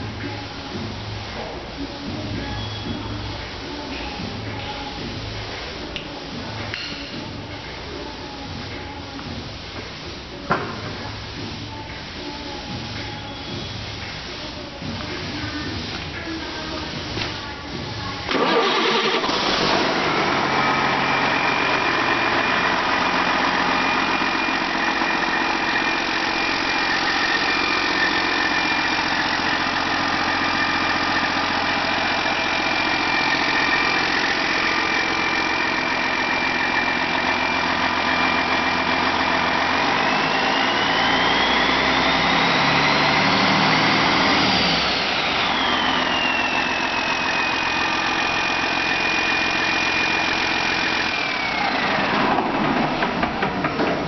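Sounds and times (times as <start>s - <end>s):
high engine whine: 0.0s - 54.0s
diesel truck engine: 18.2s - 54.0s.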